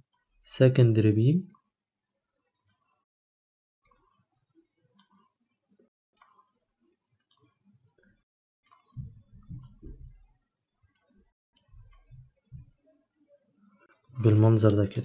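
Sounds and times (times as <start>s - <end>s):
computer mouse clicking: 2.7s - 3.0s, 4.9s - 5.3s, 6.2s - 6.5s, 8.6s - 10.0s, 10.9s - 12.7s
low knocking rumble: 9.0s - 10.2s.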